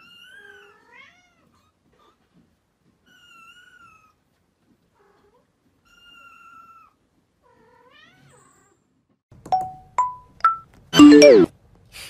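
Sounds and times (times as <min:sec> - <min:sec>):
struck note ringing: 0:09.6 - 0:11.5.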